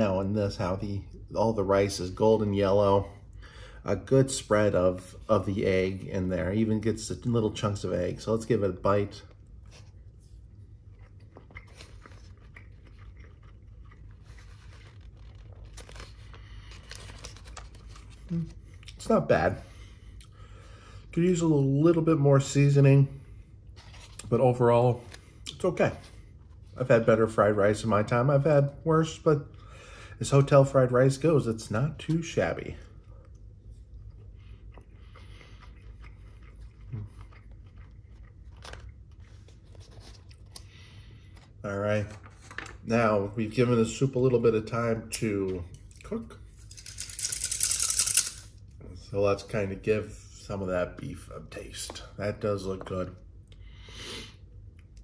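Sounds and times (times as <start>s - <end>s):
soft chewing: 9.2s - 19.0s, 32.8s - 41.6s.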